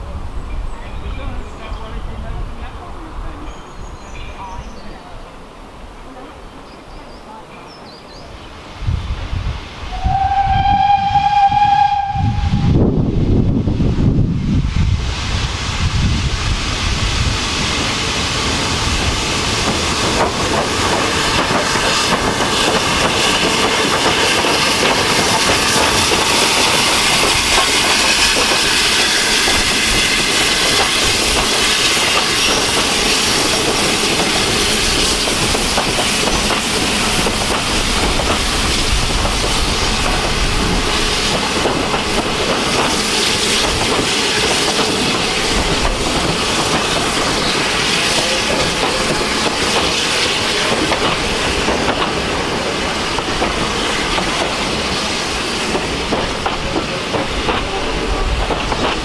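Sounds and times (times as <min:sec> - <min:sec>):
steam hissing: 0:08.6 - 0:59.0
train wheels rattling over rail joints: 0:14.7 - 0:59.0.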